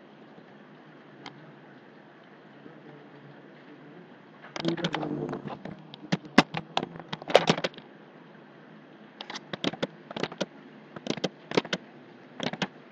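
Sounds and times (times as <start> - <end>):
computer keyboard typing: 9.2 - 11.8, 12.4 - 12.7.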